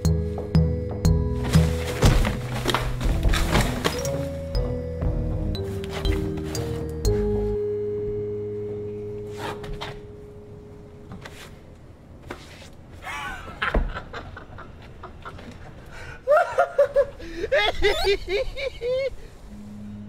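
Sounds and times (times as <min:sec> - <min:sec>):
held music chord: 0:00.0 - 0:11.7, 0:19.5 - 0:20.0
scuffling knocks: 0:01.3 - 0:04.4
heavy thump: 0:01.5 - 0:04.0.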